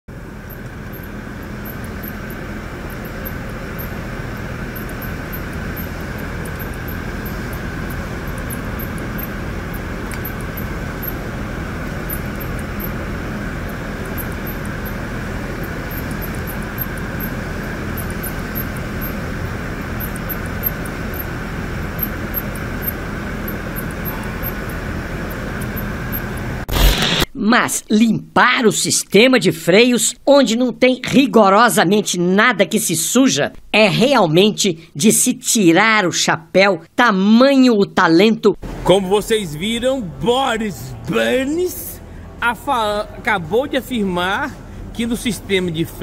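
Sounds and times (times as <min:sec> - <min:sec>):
mechanical drone with whine: 0:00.1 - 0:27.3, 0:38.6 - 0:46.0.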